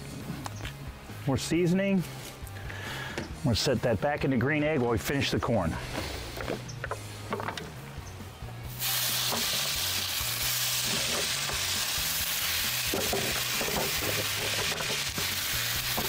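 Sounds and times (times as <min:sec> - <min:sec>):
fish sizzling in a skillet: 0:08.7 - 0:16.0.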